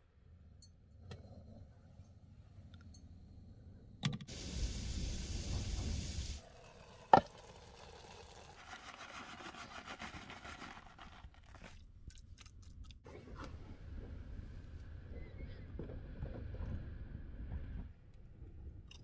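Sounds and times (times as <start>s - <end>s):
gas stove hiss: 4.3s - 6.4s
plastic bag rustling: 8.6s - 11.8s.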